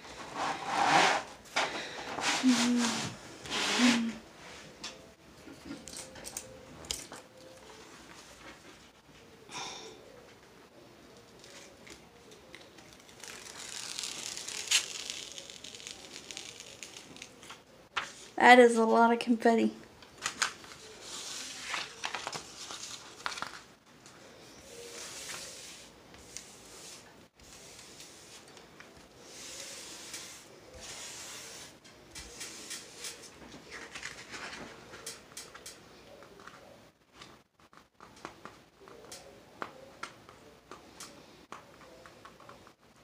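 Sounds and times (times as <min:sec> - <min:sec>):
small clicks and crinkles: 0:11.2 - 0:18.1.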